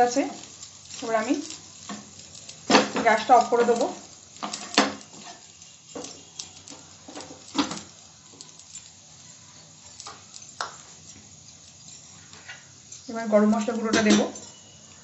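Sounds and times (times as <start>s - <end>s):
gas burner knob turning off: 0.0s - 8.6s
faint sizzling of frying rice: 0.0s - 15.0s.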